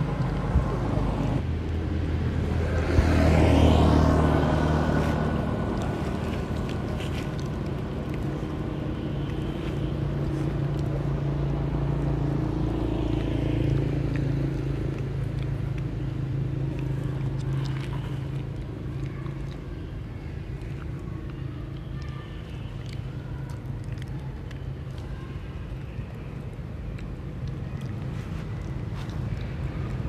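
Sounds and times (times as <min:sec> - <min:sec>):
vehicle engine running: 0:00.0 - 0:30.0.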